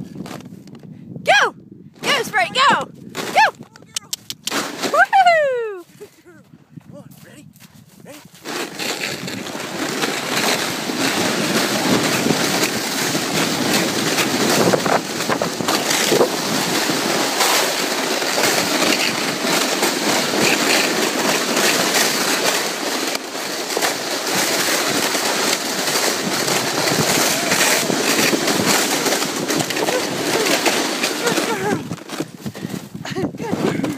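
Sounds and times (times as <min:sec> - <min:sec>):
plastic sled sliding over snow: 0:00.0 - 0:00.9, 0:02.0 - 0:03.6, 0:04.4 - 0:06.2, 0:07.1 - 0:33.9
wind on microphone: 0:00.0 - 0:17.6, 0:24.6 - 0:33.9.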